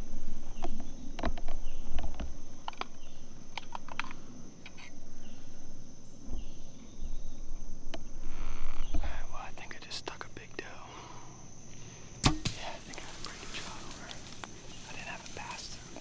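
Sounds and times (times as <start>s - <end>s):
high-pitched insect chorus: 0.0s - 16.0s.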